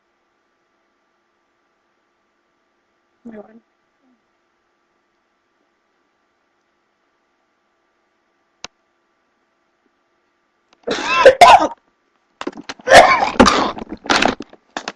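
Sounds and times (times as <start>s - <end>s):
woman coughing and gagging: 10.8s - 11.8s, 12.8s - 13.8s.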